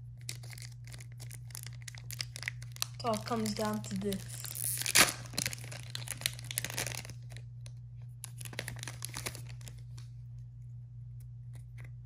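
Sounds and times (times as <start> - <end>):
foil wrapper tearing and crinkling: 0.0 - 7.5, 8.2 - 10.0.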